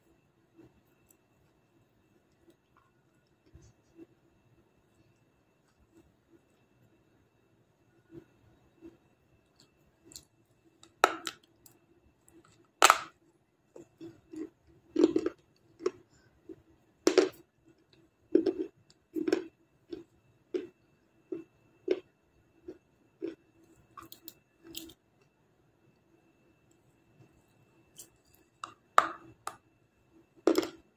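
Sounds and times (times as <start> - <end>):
crunchy chewing: 12.3 - 25.0.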